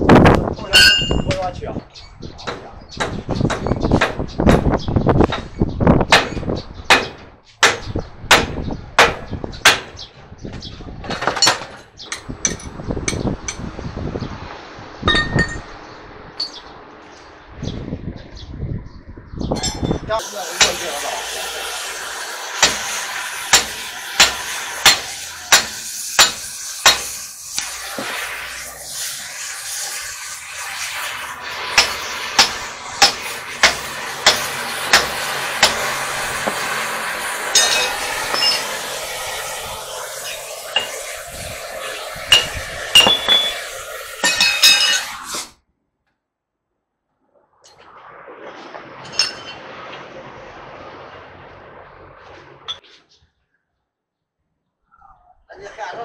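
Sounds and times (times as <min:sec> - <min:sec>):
sledgehammer clanking on steel bar: 0:00.7 - 0:01.5
gas cutting torch hissing: 0:20.2 - 0:45.6.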